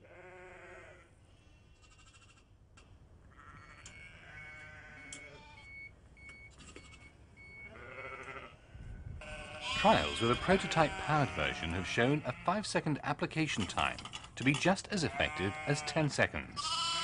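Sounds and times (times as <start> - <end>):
lambs bleating: 0.0 - 1.1, 3.3 - 5.8, 7.7 - 12.7, 15.0 - 17.0.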